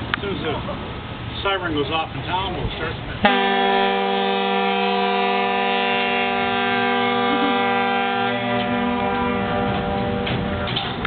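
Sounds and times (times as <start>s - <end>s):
locomotive air horn: 3.2s - 11.0s.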